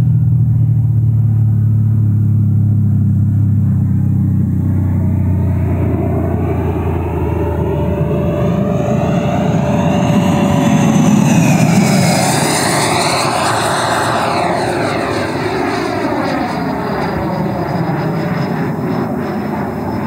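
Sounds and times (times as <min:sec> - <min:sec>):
model jet fan rushing whine: 0:02.7 - 0:20.0.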